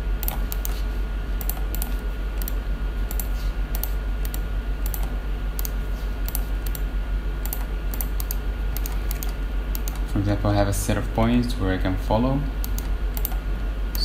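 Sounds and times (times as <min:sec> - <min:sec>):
steady low hum: 0:00.0 - 0:14.0
computer keyboard and mouse clicks: 0:00.2 - 0:00.8, 0:01.4 - 0:06.8, 0:07.4 - 0:10.1, 0:12.6 - 0:13.4.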